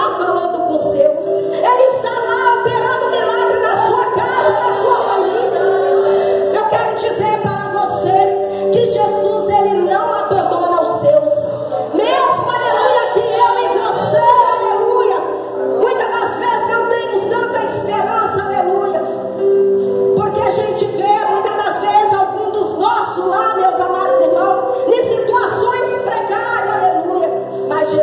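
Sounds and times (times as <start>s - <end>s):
woman singing worship song: 0.0s - 19.2s.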